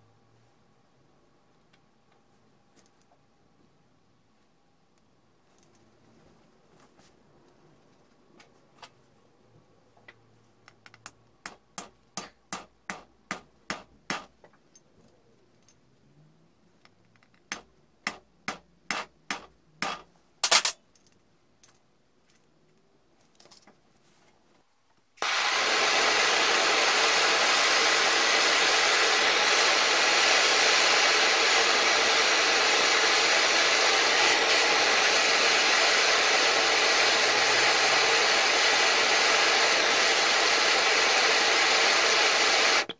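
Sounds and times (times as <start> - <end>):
blowtorch hissing: 25.2 - 42.9.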